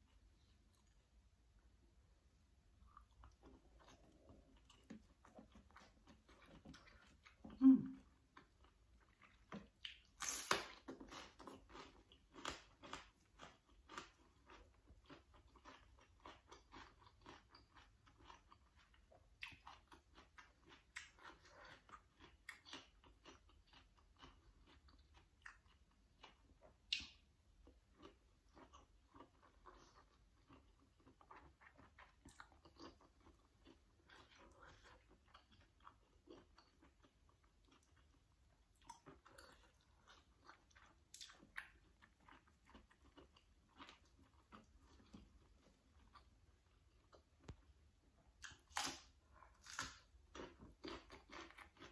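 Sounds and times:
chewing and crunching vegetables: 2.7s - 51.9s
wet mouth clicks: 10.0s - 10.7s.

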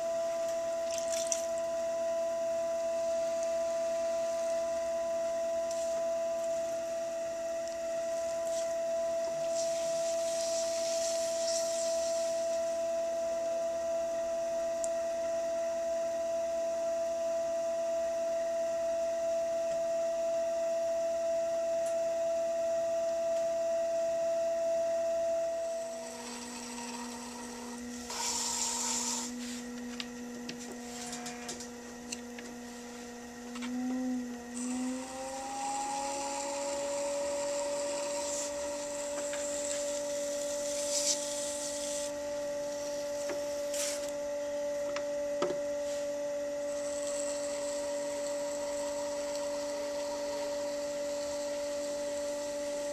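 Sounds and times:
pottery wheel motor whining: 0.0s - 52.9s
tool scraping wet clay: 25.9s - 29.6s.

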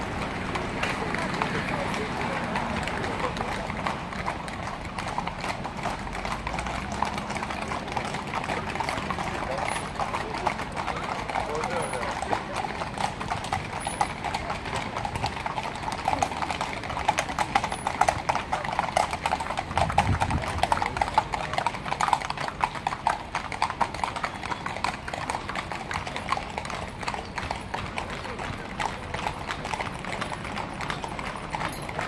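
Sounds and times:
horse hooves clip-clopping on asphalt: 0.0s - 32.0s.

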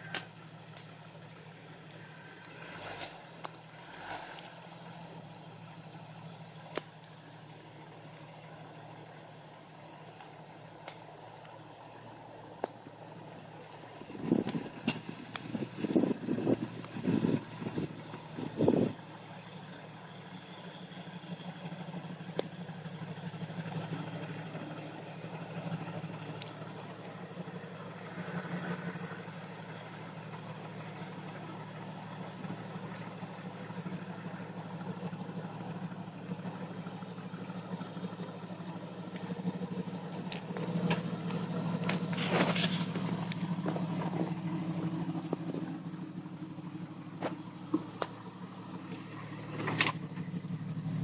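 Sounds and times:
car engine running at low revs: 0.0s - 51.0s.

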